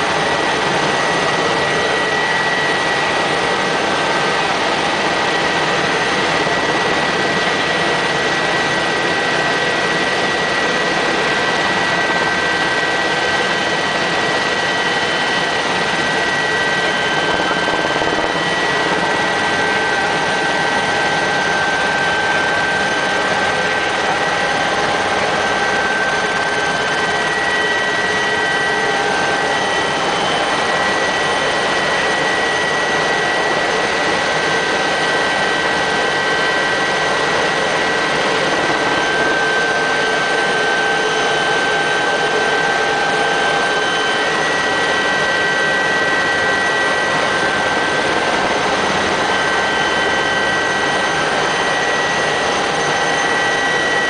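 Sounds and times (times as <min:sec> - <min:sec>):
helicopter engine and rotor noise: 0:00.0 - 0:54.0.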